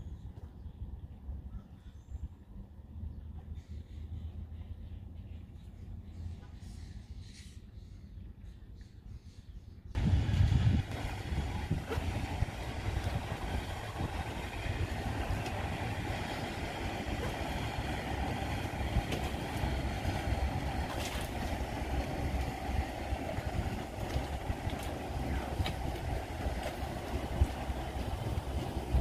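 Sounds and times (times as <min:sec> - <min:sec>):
wind noise: 0:09.9 - 0:29.0
boat motor running: 0:10.0 - 0:29.0
water noise: 0:10.0 - 0:29.0.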